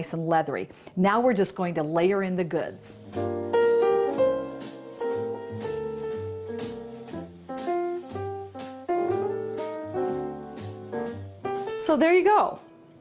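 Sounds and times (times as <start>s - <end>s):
bass line: 3.0s - 11.3s
plucked instrumental music: 3.0s - 13.0s.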